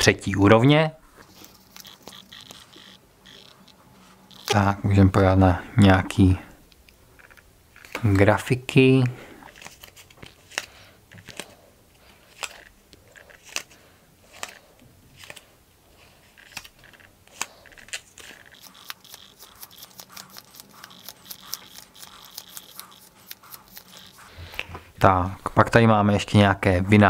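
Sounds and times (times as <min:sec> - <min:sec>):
cards clicking as leafed through: 0:07.3 - 0:08.2, 0:09.5 - 0:15.5, 0:16.2 - 0:24.7.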